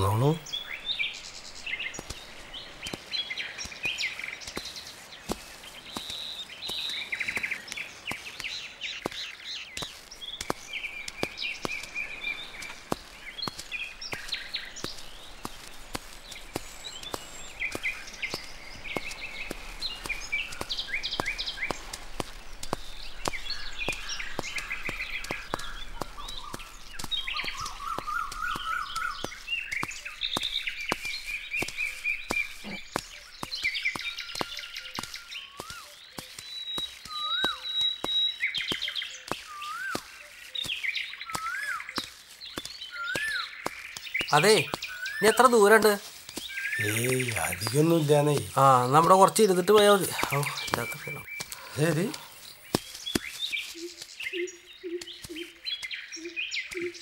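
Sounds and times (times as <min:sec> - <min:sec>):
lower whistled bird call: 0:00.0 - 0:48.9, 0:50.1 - 0:57.0
birds chirping and trilling: 0:00.0 - 0:57.0
footsteps through leafy undergrowth: 0:00.0 - 0:57.0.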